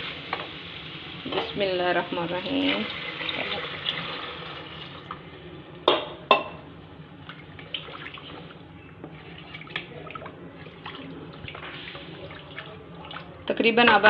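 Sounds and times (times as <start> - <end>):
water pouring into a pot: 2.4 - 5.2
dal stirred and sloshing: 7.2 - 13.7.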